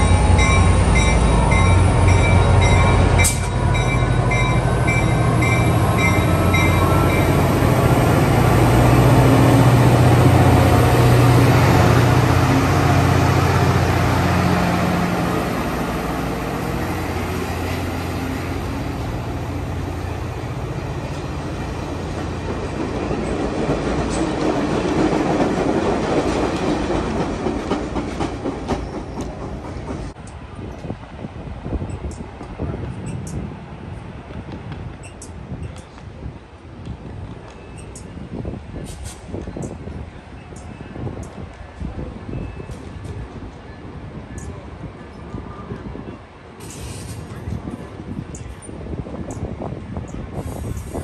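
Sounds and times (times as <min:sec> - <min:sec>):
locomotive engine drone: 0:00.0 - 0:24.8
train wheels clattering on rails: 0:21.1 - 0:31.0.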